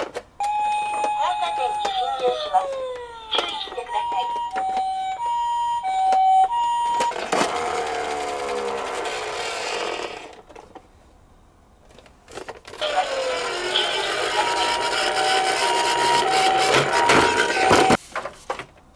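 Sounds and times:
toy two-tone siren: 0:00.4 - 0:09.4, 0:12.8 - 0:18.0
toy wheels whirring: 0:06.0 - 0:10.4, 0:12.8 - 0:18.0.

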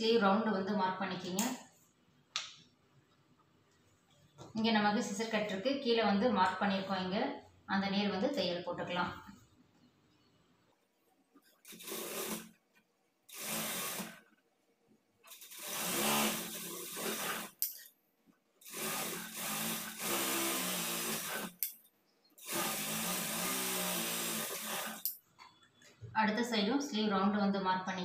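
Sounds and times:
sewing machine stitching: 0:11.6 - 0:12.6, 0:13.3 - 0:14.3, 0:15.3 - 0:17.6, 0:18.6 - 0:21.6, 0:22.4 - 0:25.1.

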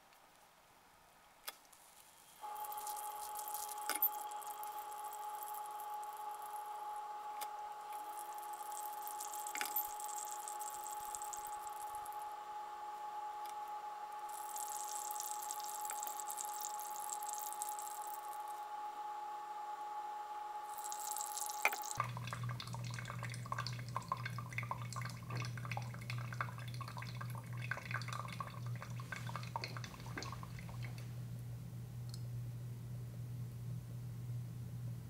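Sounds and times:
water pouring onto coffee grounds: 0:01.9 - 0:06.6, 0:08.0 - 0:12.2, 0:14.3 - 0:18.5, 0:20.7 - 0:31.1
constant ringing tone: 0:02.3 - 0:31.0.

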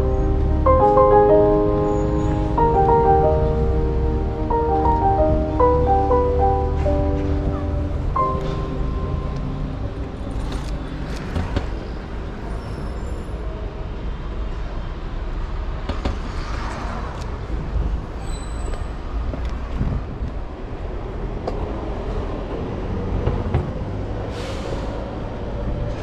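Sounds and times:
background music: 0:00.0 - 0:11.6
passing vehicles rumble: 0:00.0 - 0:26.0.

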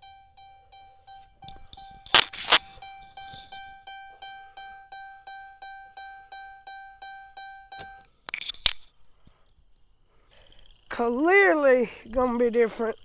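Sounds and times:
car warning chime: 0:00.0 - 0:08.1.

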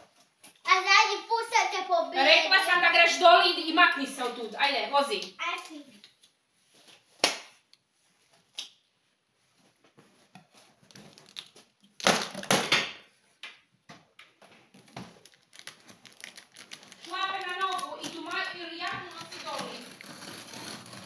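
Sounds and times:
blade rasping on cardboard: 0:19.2 - 0:21.0.

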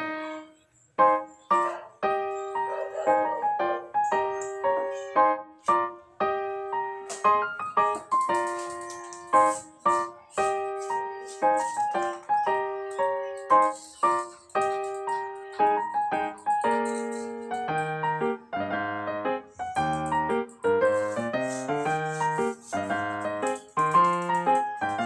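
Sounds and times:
light piano melody: 0:00.0 - 0:25.0.

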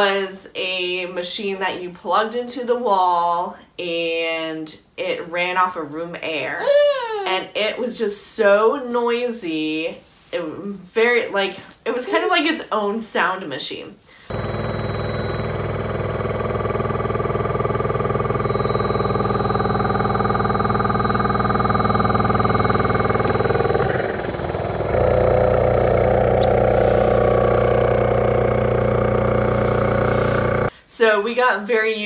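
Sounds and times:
oxygen concentrator compressor hum: 0:14.3 - 0:30.7.

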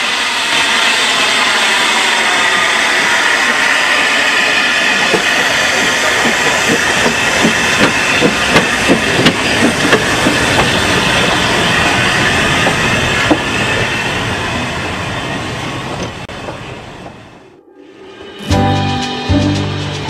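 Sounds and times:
steam train rolling past: 0:00.0 - 0:20.0
wheels clicking over rail joints: 0:06.2 - 0:11.4.

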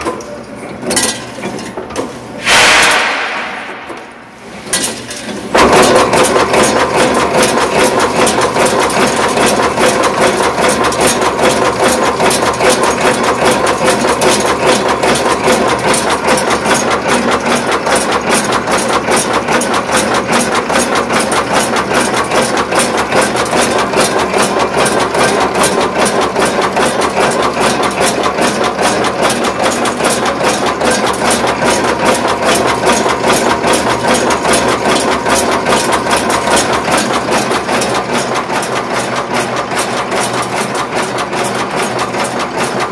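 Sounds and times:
machine hum: 0:02.4 - 0:06.2
rapid metallic machine clicks: 0:02.4 - 0:42.9.

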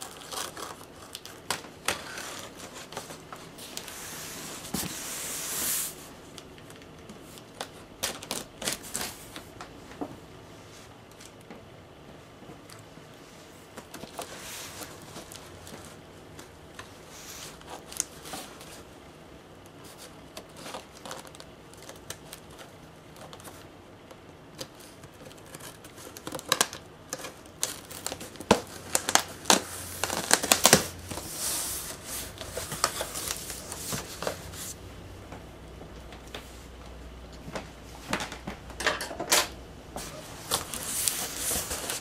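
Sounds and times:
cardboard flaps crinkling: 0:00.0 - 0:09.5, 0:19.8 - 0:23.6, 0:24.2 - 0:34.8, 0:40.0 - 0:42.0
tape crackle: 0:00.0 - 0:10.1, 0:12.5 - 0:18.9, 0:19.6 - 0:42.0.

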